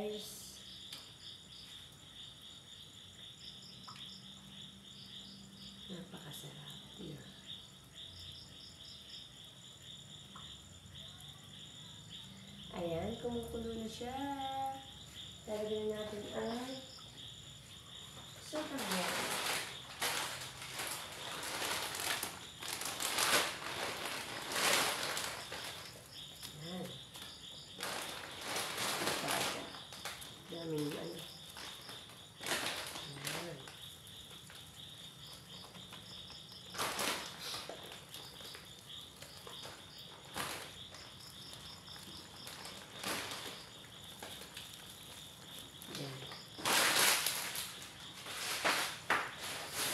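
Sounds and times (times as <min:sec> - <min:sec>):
crickets chirping: 0:00.0 - 0:49.9
plastic packet crinkling: 0:18.6 - 0:26.1, 0:27.8 - 0:30.9, 0:31.5 - 0:33.8, 0:36.6 - 0:45.5, 0:46.1 - 0:49.9.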